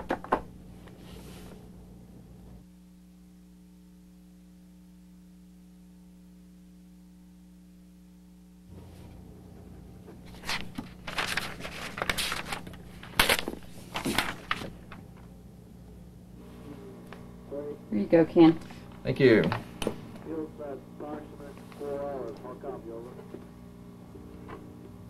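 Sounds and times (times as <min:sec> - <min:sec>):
electrical hum: 0:00.0 - 0:25.0
paper rustling and crackling: 0:10.2 - 0:15.0.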